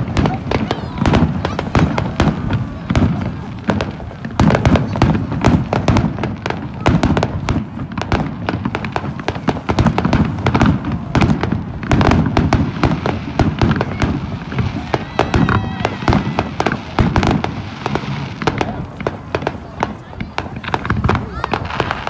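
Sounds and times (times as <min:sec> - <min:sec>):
fireworks bangs and booms: 0:00.0 - 0:22.0
fireworks crackling: 0:00.0 - 0:22.0.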